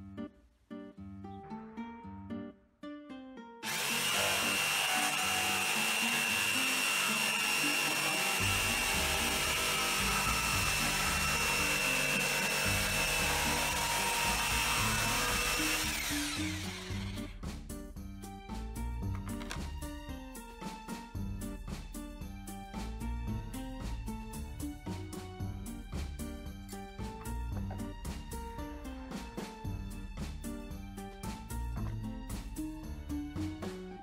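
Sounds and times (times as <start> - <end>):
guitar background music: 0.0 - 33.9
electric power tool whining: 3.6 - 17.4.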